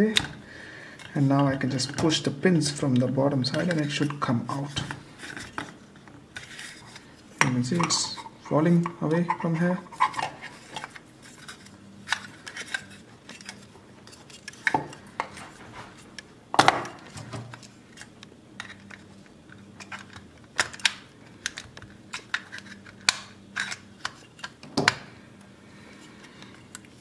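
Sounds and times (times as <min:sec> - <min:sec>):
plastic parts clicking: 0:16.6 - 0:25.1.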